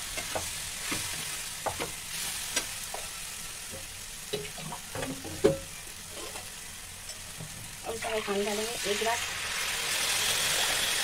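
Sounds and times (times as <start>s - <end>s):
food sizzling in a pan: 0.0s - 11.0s
metal spatula scraping a pan: 6.0s - 6.5s.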